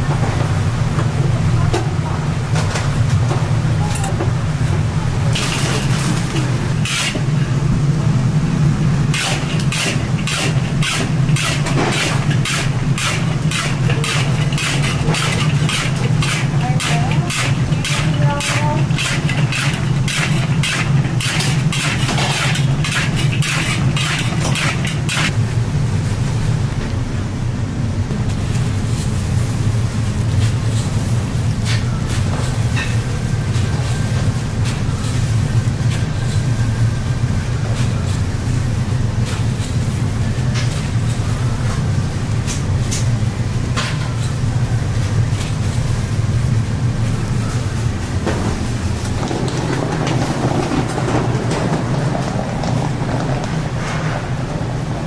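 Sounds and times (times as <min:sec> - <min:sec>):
steady low hum: 0:00.0 - 0:55.0
metal spatula scraping in wok: 0:09.1 - 0:25.3
metal trays and utensils clinking: 0:09.2 - 0:25.3.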